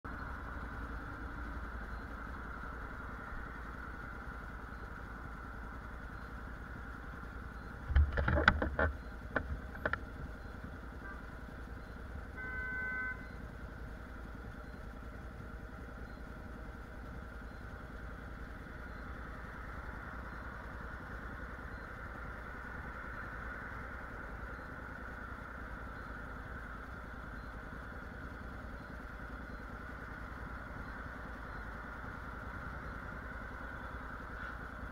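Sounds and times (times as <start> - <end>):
motorcycle engine idling: 0.0 - 34.9
short steady tone: 10.4 - 13.5.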